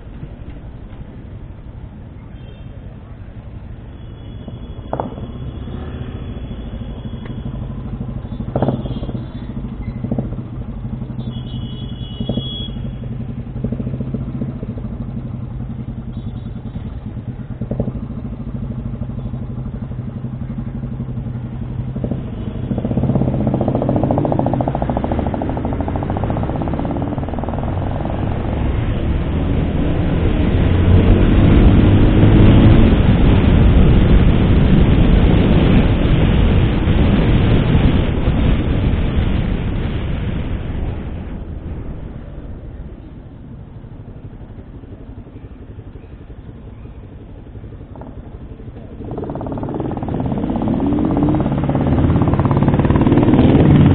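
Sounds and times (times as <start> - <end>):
motorcycle engine running: 0.0 - 53.9
sharp knocks: 4.8 - 5.4
wind noise: 21.8 - 44.1, 47.8 - 53.9.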